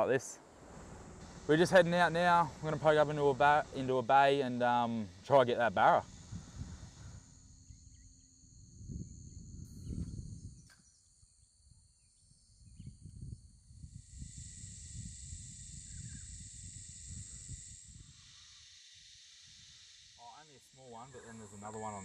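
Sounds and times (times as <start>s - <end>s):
low uneven rumble: 0.0s - 7.4s
insects droning: 0.0s - 22.0s.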